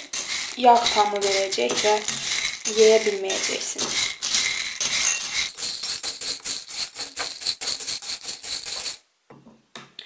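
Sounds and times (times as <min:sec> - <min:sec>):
seeds rattling in glass bowl: 0:00.0 - 0:09.0.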